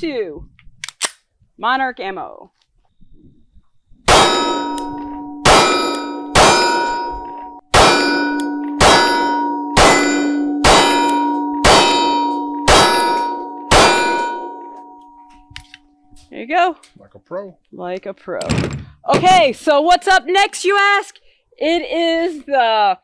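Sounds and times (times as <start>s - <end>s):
pistol shots: 4.1s - 6.9s, 7.7s - 14.5s
steel target ringing: 4.1s - 16.1s.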